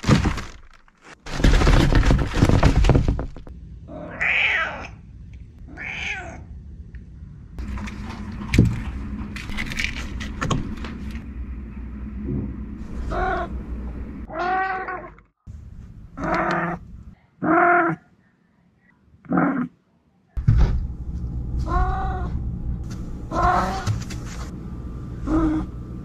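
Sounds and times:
cat meowing: 3.9 - 5.0, 5.7 - 6.5, 21.6 - 22.3, 23.3 - 23.9.

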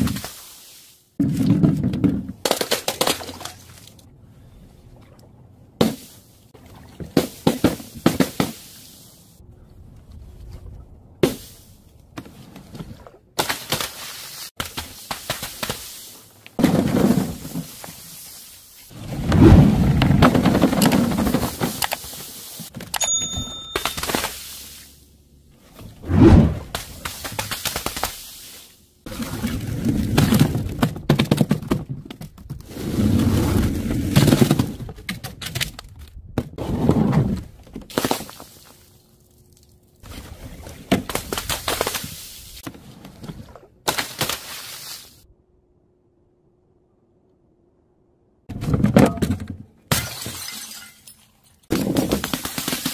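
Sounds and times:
short ringing tone: 23.0 - 24.4.

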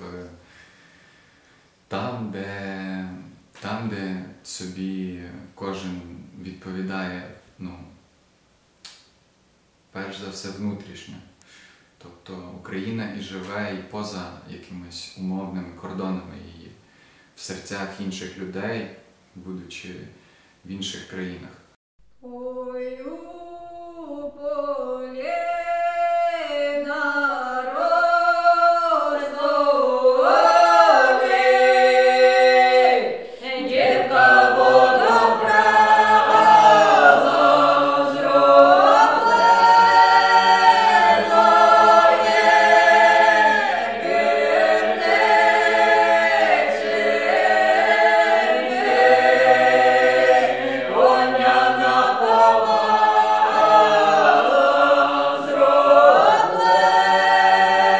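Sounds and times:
female voice singing: 22.2 - 31.4
group singing in harmony: 22.3 - 57.9.

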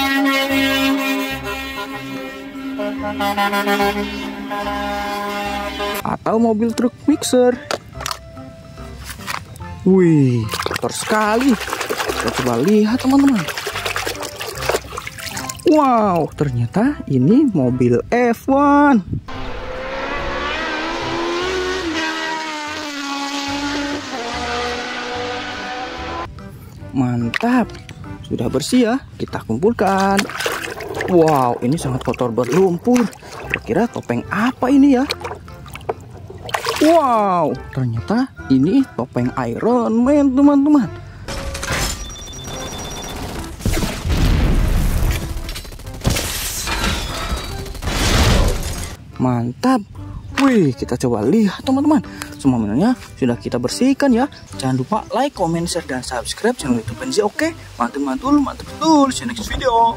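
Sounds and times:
dramatic music: 0.0 - 6.1, 19.3 - 28.6, 29.8 - 37.9, 41.3 - 48.9
racing car engine at high revs: 19.3 - 26.3
high electronic tone: 41.3 - 43.5
explosions: 43.3 - 46.6
sudden impact hits: 43.6 - 45.4.

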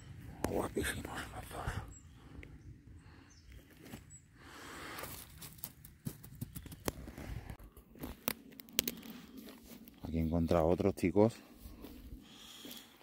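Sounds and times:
footsteps on pine needles and twigs: 4.9 - 10.2.

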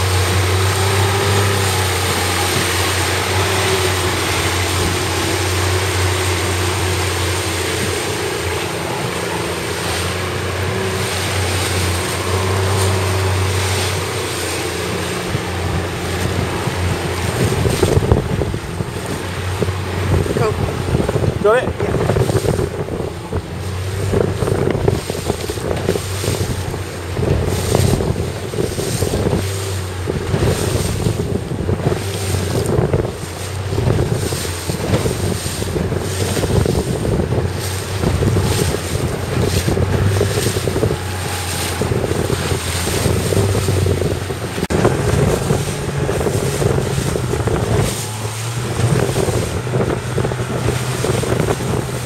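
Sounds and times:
choppy water splashing: 0.0 - 52.0
motorboat engine humming: 0.0 - 52.0
wind buffeting microphone: 0.0 - 52.0.

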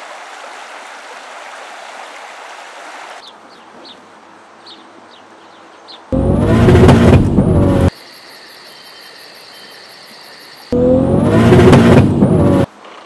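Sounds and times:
stream water rushing: 0.0 - 3.2
bird chirping: 4.6 - 6.2.

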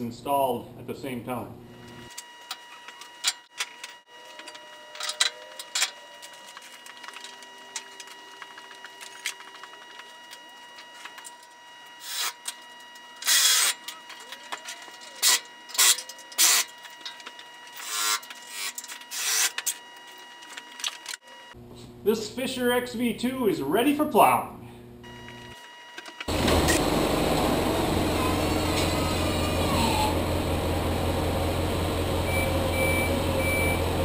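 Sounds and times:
faint high hum: 0.0 - 34.0
pneumatic tool bursts: 12.0 - 12.6, 13.2 - 14.0, 15.2 - 16.8, 17.7 - 19.8.

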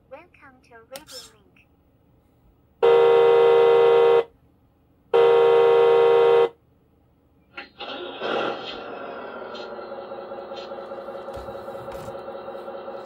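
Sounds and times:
electronic truck horn blasts: 2.8 - 4.3, 5.1 - 6.6.

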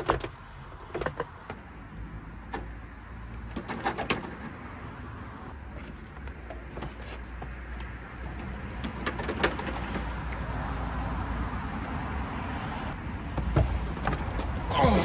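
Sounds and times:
electrical cable clicks and knocks: 5.8 - 10.5.

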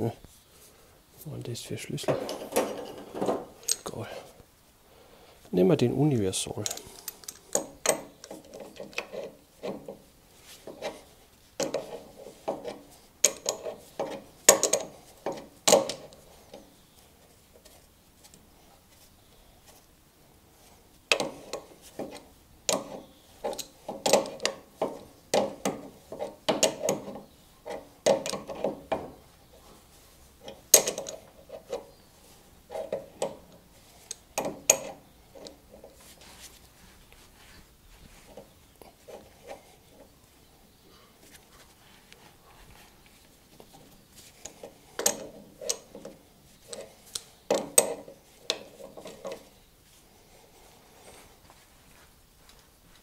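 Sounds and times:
spanner clicking and scraping metal: 6.6 - 10.0, 11.6 - 16.6, 21.1 - 29.0, 30.4 - 31.9, 32.7 - 36.0, 44.4 - 49.5.

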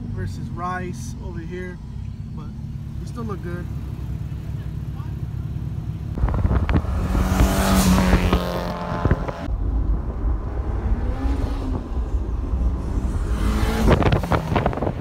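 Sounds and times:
car engine drone: 0.0 - 15.0
road noise: 0.0 - 15.0
wind buffeting microphone: 6.1 - 15.0.

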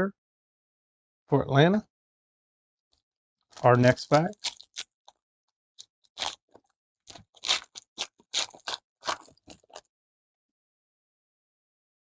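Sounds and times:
foil wrapper crinkling and tearing: 3.5 - 4.9, 6.2 - 9.8.

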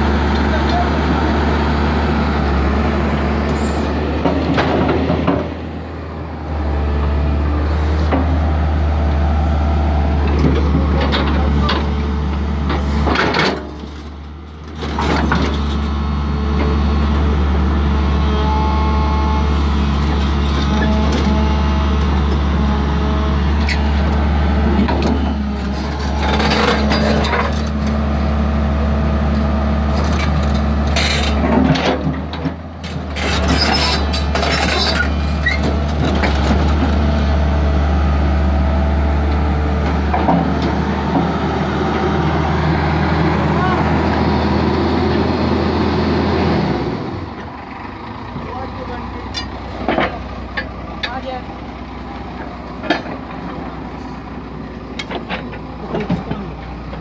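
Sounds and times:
excavator diesel engine under load: 0.0 - 57.0.

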